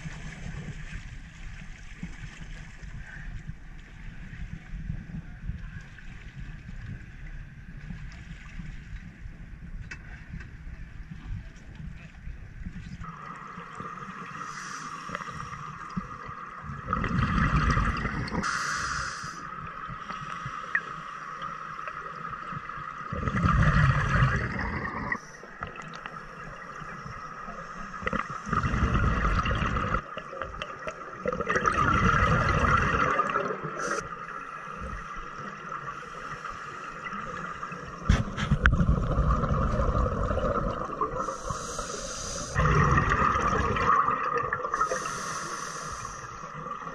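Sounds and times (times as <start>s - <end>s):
exhaled bubbles gurgling: 12.8s - 20.9s, 21.8s - 46.9s
regulator breaths underwater: 14.3s - 15.8s, 17.0s - 19.5s, 38.1s - 44.0s, 44.6s - 46.6s.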